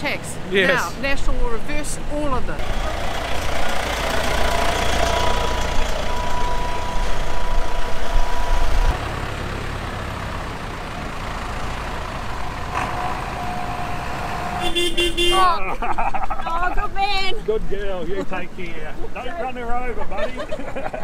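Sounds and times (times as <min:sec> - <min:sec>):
tractor engines rumbling: 0:00.0 - 0:21.0
steady engine whine: 0:02.6 - 0:14.6.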